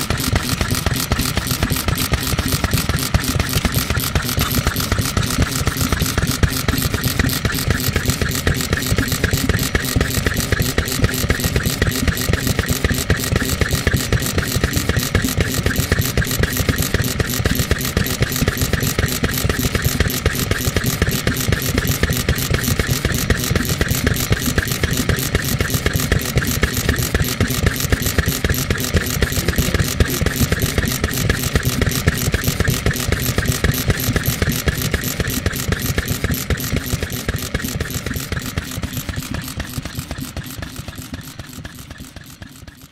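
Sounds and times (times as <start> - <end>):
engine running with clatter: 0.0 - 42.9.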